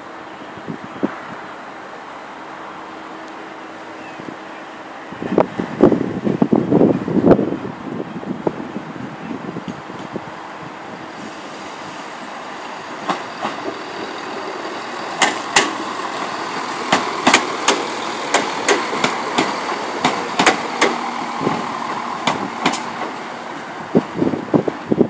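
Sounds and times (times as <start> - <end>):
diesel train engine hum: 0.0 - 25.0
train wheels clicking over rail joints: 11.0 - 24.9.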